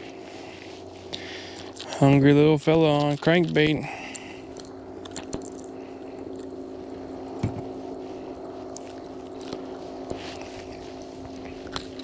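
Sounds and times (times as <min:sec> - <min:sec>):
electric motor humming: 0:00.0 - 0:12.0.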